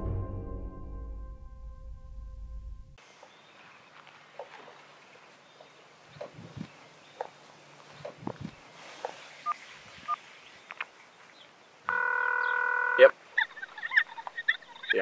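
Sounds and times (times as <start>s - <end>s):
bird chirps: 12.2s - 15.0s.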